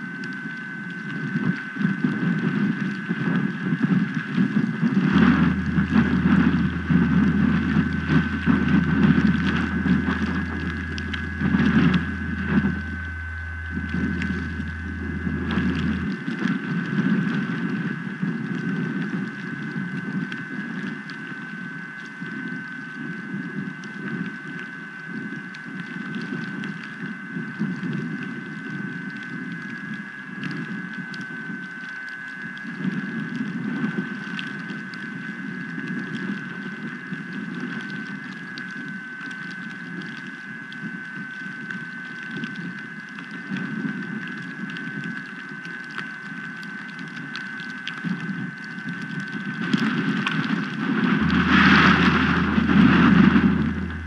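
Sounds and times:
thin high whine: 0:00.0 - 0:54.0
strong gusting wind: 0:01.2 - 0:20.7, 0:49.3 - 0:54.0.

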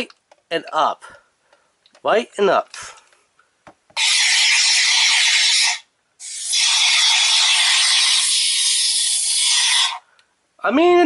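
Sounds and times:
water jet squirting into paper cup: 0:04.0 - 0:10.0.

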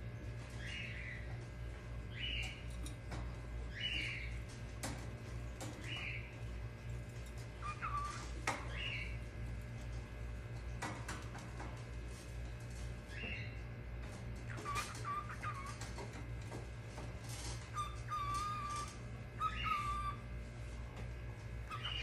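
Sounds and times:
steady low hum: 0:00.0 - 0:22.0
cockatiel chirping: 0:07.6 - 0:09.1, 0:14.5 - 0:15.8, 0:17.7 - 0:20.2, 0:21.7 - 0:22.0.

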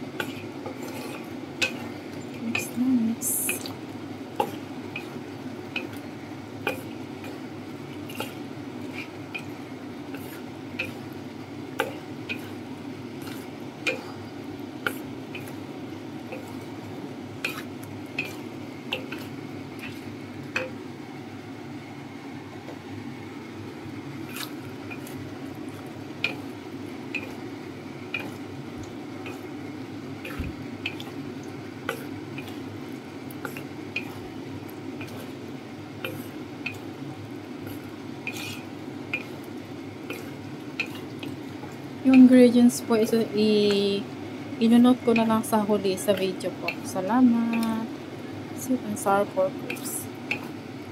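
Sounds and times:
steady low hum: 0:00.0 - 0:50.9
wet squishing of sauce: 0:13.2 - 0:14.2, 0:24.2 - 0:27.4, 0:30.2 - 0:41.9.

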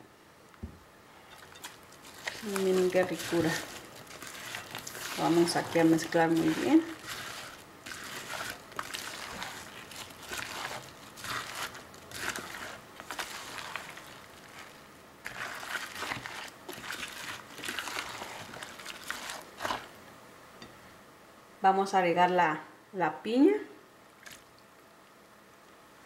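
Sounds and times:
spatula stirring in glass bowl: 0:01.3 - 0:19.9.

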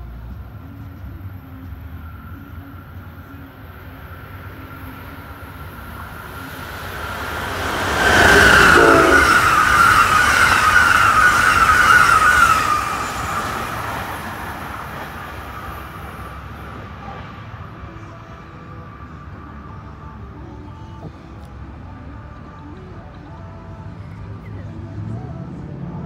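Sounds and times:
rumble of train wheels: 0:00.0 - 0:26.0
high whine: 0:01.5 - 0:23.1
train rushing past: 0:03.4 - 0:19.7.

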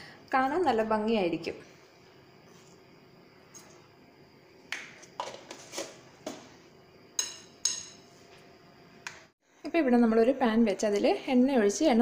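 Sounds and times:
metal spoon clinking against bowl: 0:07.2 - 0:08.0.

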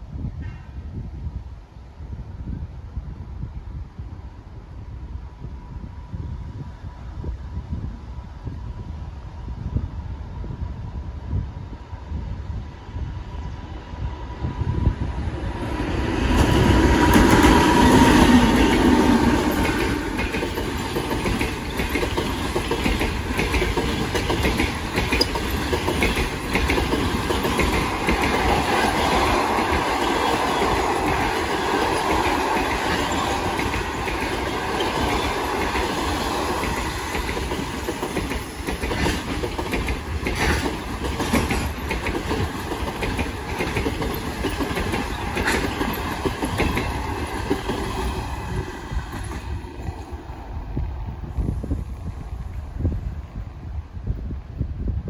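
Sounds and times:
electric locomotive passing: 0:09.3 - 0:54.5
train coaches rumbling: 0:11.7 - 0:53.8
wheels clacking on rails: 0:15.1 - 0:52.6.

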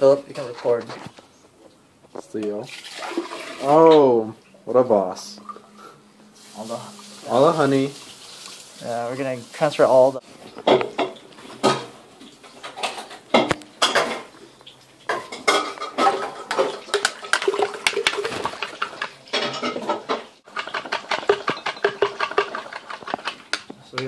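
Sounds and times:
spoon clinking in a pitcher: 0:20.6 - 0:23.0.

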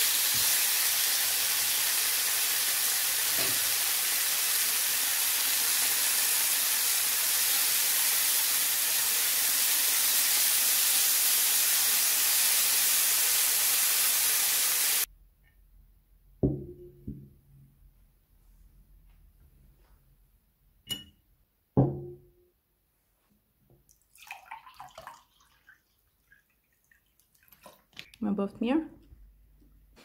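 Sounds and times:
meat sizzling in a frying pan: 0:00.0 - 0:15.1.

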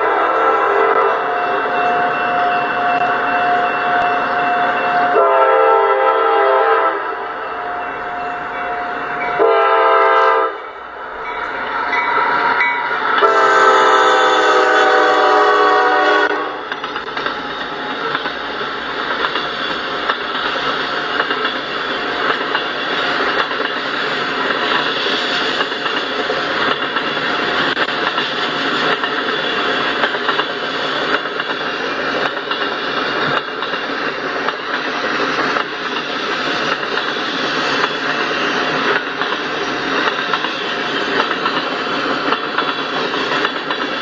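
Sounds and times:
train horn blasts: 0:00.0 - 0:08.2, 0:08.8 - 0:10.8, 0:12.0 - 0:16.7
train cars rolling past: 0:00.0 - 0:44.0.

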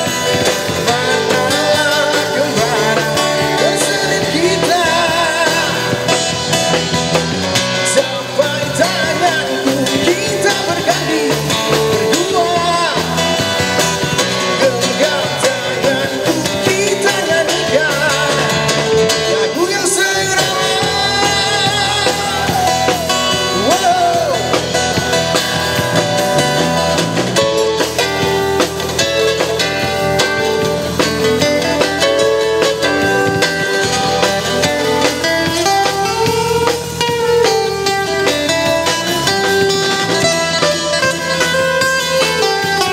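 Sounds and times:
man singing into microphone: 0:00.0 - 0:06.4, 0:07.6 - 0:13.6, 0:14.2 - 0:25.1
drums: 0:00.0 - 0:42.9
electric bass: 0:00.0 - 0:42.9
electric guitar: 0:00.0 - 0:42.9.

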